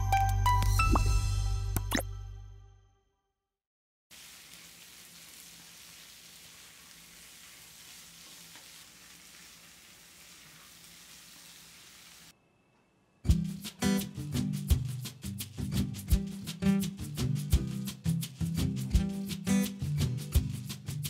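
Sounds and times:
vegetables sizzling in hot oil: 4.1s - 12.3s.

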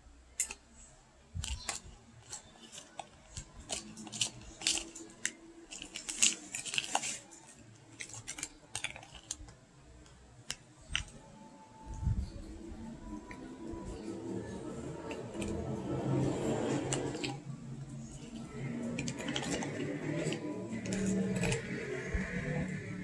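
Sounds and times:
spoon clicking and scraping in cup: 1.4s - 7.2s, 7.9s - 9.5s, 18.1s - 22.4s.

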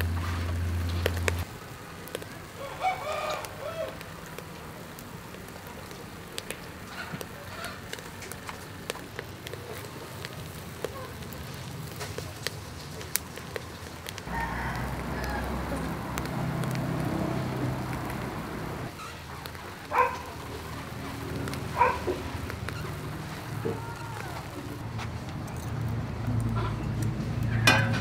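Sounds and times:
clams sizzling on grill: 0.0s - 25.0s
coals crackling: 0.0s - 28.0s
low rumble: 14.3s - 18.9s.

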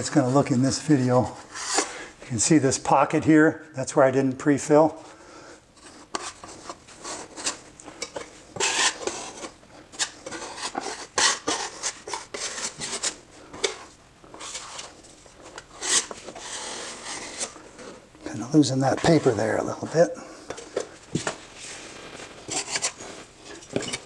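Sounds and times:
drywall knife scraping joint compound: 1.2s - 2.1s, 5.8s - 18.0s, 21.7s - 24.0s.

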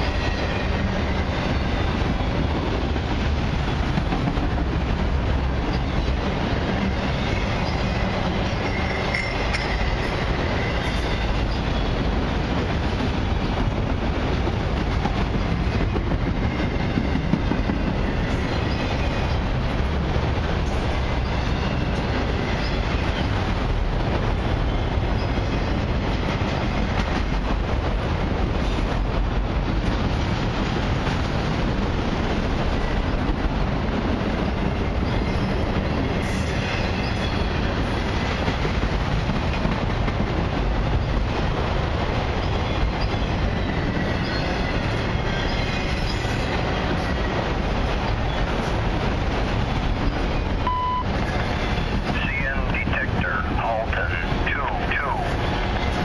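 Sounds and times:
train wheels rumbling on rails: 0.0s - 56.0s
faint high wheel squeals: 43.0s - 46.6s.

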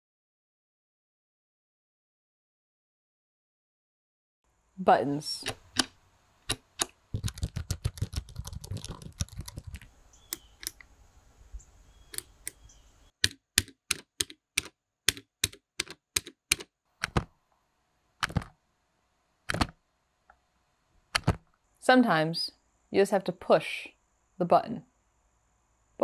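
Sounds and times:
push buttons clicking: 5.4s - 5.9s, 13.2s - 17.3s, 18.2s - 18.5s, 19.5s - 19.7s, 21.2s - 21.4s.

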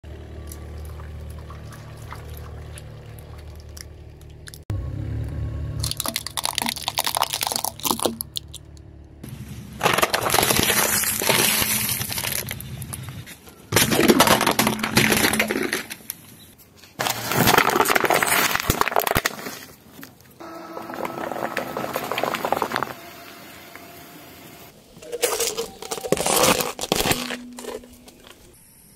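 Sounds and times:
liquid splashing: 0.6s - 4.4s
tyre crushing plastic: 5.8s - 8.6s, 9.8s - 16.2s, 16.9s - 23.0s, 25.0s - 28.5s
low steady hum: 20.3s - 28.9s.

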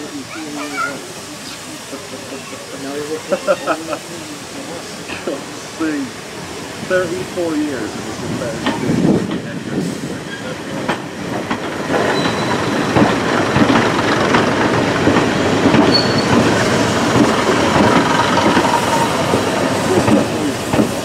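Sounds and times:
rattle of train running gear: 8.2s - 21.0s
wheels clacking over rail joints: 8.4s - 21.0s
wheel squeals: 12.0s - 13.0s, 15.8s - 16.4s.

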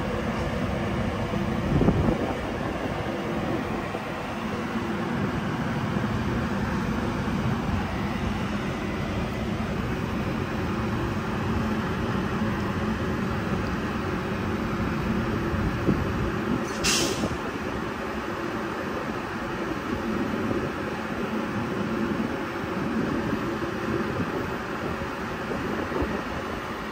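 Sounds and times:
electric train humming: 0.0s - 16.7s
hiss of air: 16.6s - 17.5s.

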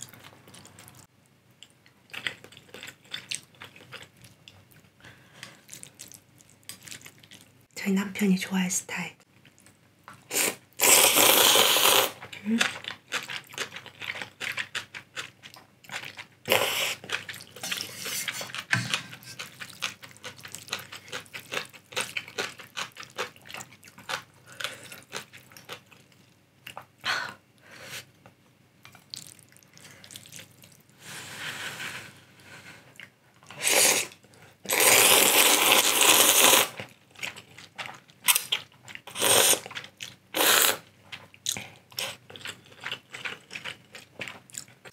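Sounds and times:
chewing and mouth clicks: 0.0s - 7.5s, 12.2s - 26.9s, 28.8s - 30.8s, 36.8s - 44.9s
person slurping noodles: 10.3s - 12.2s, 16.5s - 17.0s, 33.5s - 36.8s, 39.1s - 39.7s, 40.4s - 40.8s.

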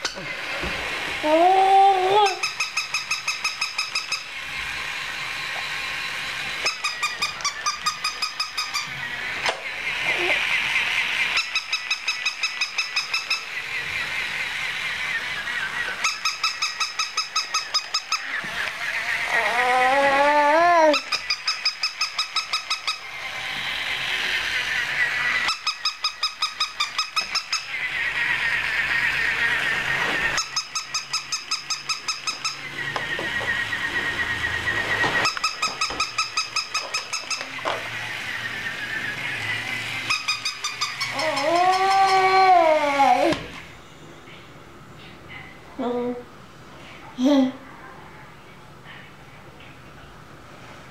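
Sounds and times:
electronic toy whine and hum: 0.0s - 45.0s
rapid pulsing toy beeps: 2.3s - 4.4s, 6.6s - 8.9s, 15.1s - 18.3s
squeaky electronic yips: 38.3s - 43.4s.

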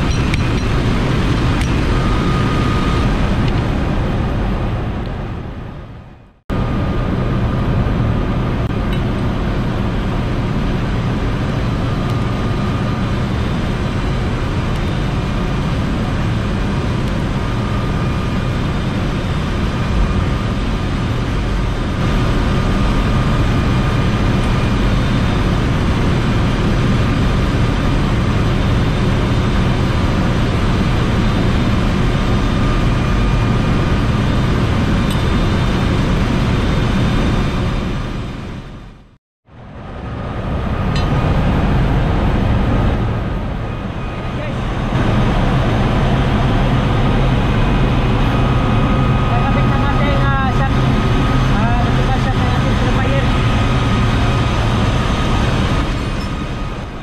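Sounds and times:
faint whining tones: 0.0s - 8.3s
engine room machinery drone: 0.0s - 57.0s.

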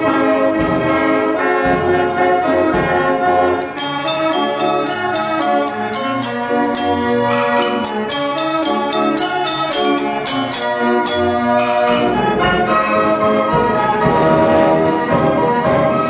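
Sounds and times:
glockenspiel bells: 3.6s - 12.7s.

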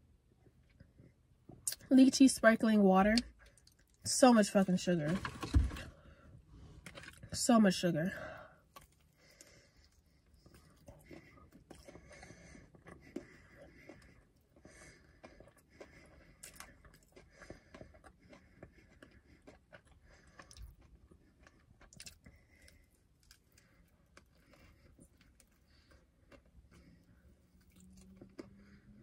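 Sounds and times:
chewing fried chicken: 3.2s - 4.1s, 8.3s - 29.0s.

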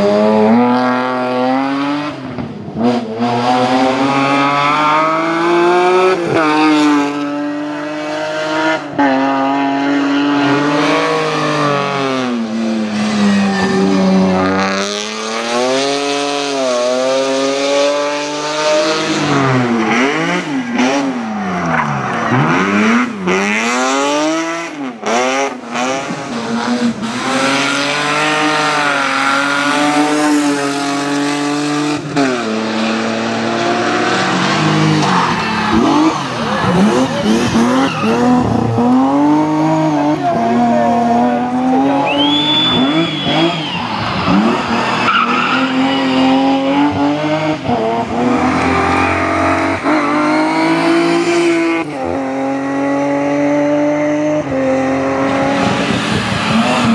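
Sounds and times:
race car engines revving: 0.0s - 56.9s
tyre squeal: 13.1s - 14.5s, 42.0s - 46.6s.

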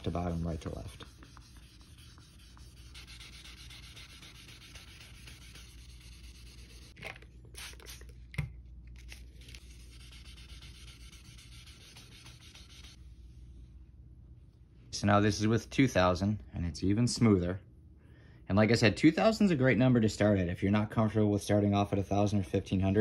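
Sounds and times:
sandpaper rubbing hiss: 0.0s - 7.0s, 9.7s - 13.0s
spray bottle squirts: 7.5s - 8.1s.

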